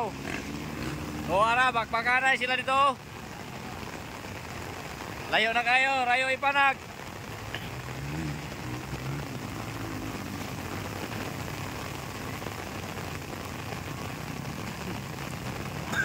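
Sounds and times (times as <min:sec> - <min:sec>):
faint motorcycle engine: 0:00.0 - 0:05.2
heavy rain hissing: 0:00.0 - 0:16.0.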